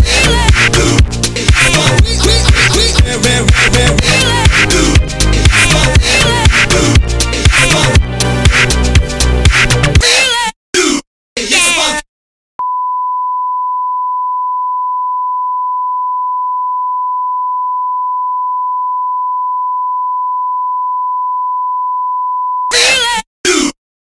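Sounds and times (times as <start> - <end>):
voice bursts: 10.0 - 12.0, 22.7 - 23.8.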